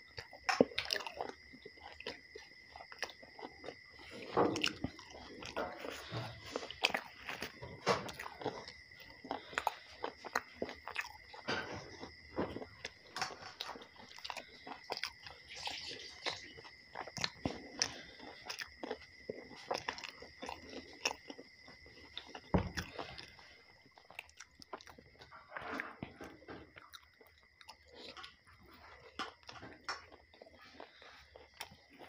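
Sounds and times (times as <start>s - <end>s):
man chewing food: 0.0s - 32.0s
dull thump: 22.5s - 22.9s.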